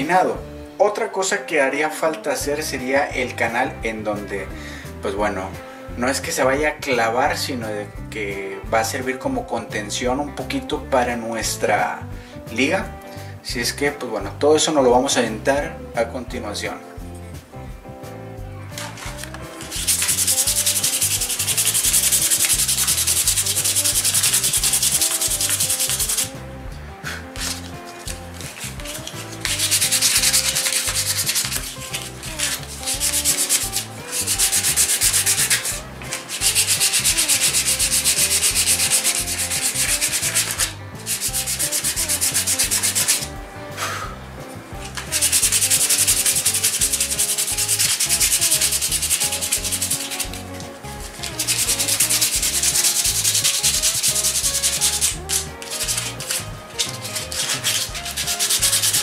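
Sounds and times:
sandpaper rasping on wood: 18.8 - 26.4, 27.1 - 43.3, 44.9 - 59.0.

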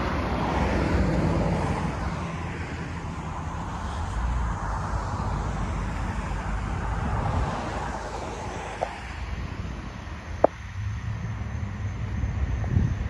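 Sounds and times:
road traffic: 0.0 - 13.0
wind on microphone: 3.2 - 13.0.

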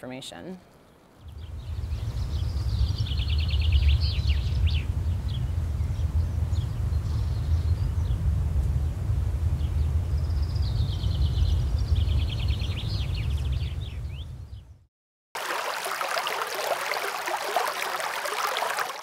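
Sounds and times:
low rumble: 1.3 - 14.8
rocky creek rushing: 15.4 - 19.0.

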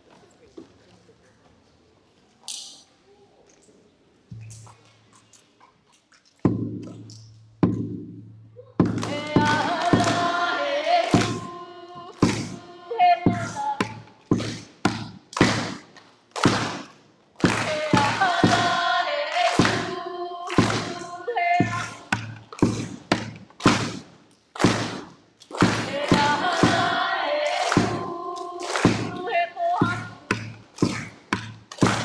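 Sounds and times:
drum strikes: 6.5 - 32.0
person chanting: 8.6 - 14.6, 17.4 - 22.4, 25.6 - 31.1.

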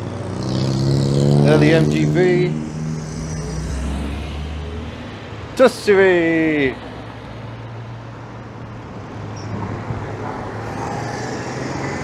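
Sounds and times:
car engine driving past: 0.3 - 5.5.

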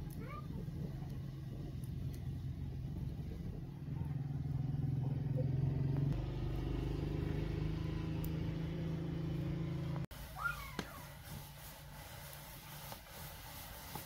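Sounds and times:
motor engine humming: 0.0 - 10.1.

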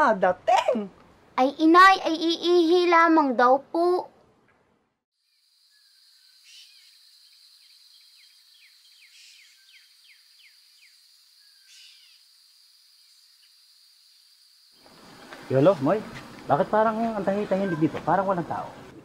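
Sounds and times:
high insect drone: 5.2 - 18.7
bird chirping: 5.3 - 13.5.

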